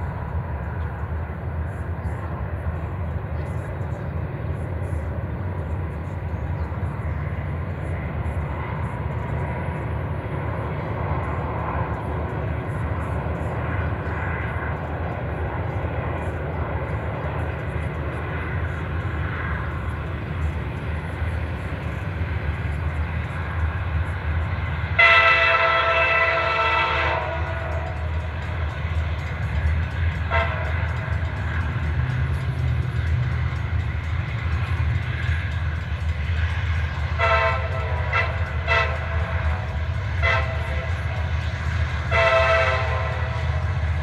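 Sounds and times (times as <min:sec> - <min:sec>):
steady low rumble: 0:00.0 - 0:25.0
locomotive horn blasts: 0:24.9 - 0:27.9, 0:30.3 - 0:30.8, 0:37.2 - 0:41.1, 0:42.0 - 0:43.4.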